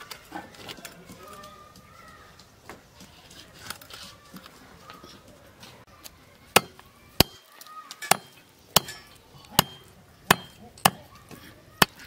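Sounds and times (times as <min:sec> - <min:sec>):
knife chopping on wooden block: 0:09.6 - 0:11.0.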